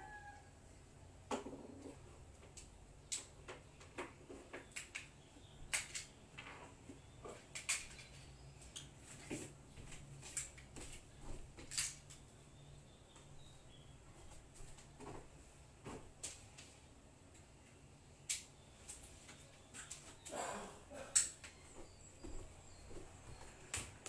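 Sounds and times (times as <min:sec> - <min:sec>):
small objects clicking and knocking: 0:05.7 - 0:06.5, 0:07.3 - 0:08.2, 0:11.6 - 0:12.2.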